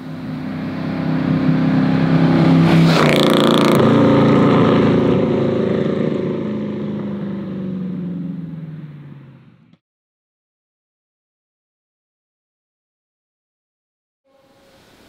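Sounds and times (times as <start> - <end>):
sports car passing by: 0.0 - 9.7.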